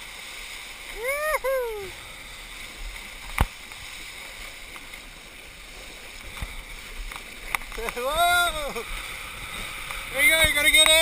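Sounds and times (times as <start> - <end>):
rush of water and wind: 0.0 - 11.0
person shouting woo-hoo: 0.9 - 2.0.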